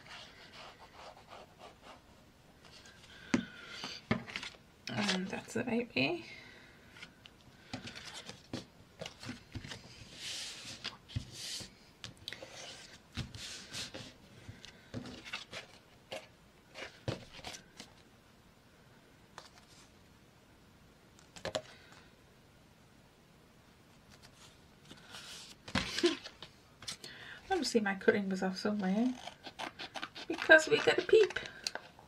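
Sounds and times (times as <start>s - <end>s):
paper rustling and folding: 4.0s - 5.4s, 12.4s - 18.0s, 24.1s - 27.0s, 29.1s - 32.0s.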